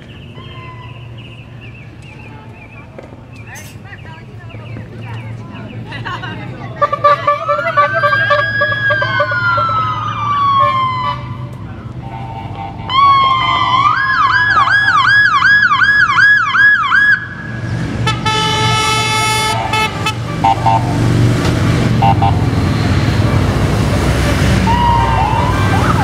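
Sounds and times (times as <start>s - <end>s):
siren wailing and yelping: 7.6s - 11.3s, 24.6s - 26.0s
horn blast: 12.0s - 13.8s, 18.0s - 25.8s.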